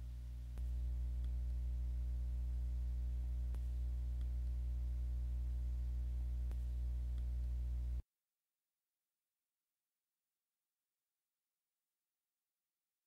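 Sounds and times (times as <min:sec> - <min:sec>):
faint clicks: 0:00.0 - 0:01.5, 0:03.4 - 0:04.6, 0:06.4 - 0:08.0
low-pitched hum: 0:00.0 - 0:08.0.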